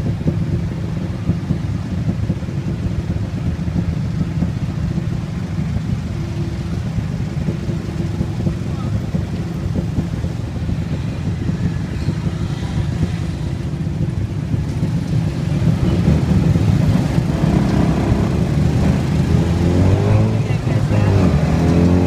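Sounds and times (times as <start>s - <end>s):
auto rickshaw engine idling: 0.0s - 22.0s
motorbike and car traffic: 0.0s - 22.0s.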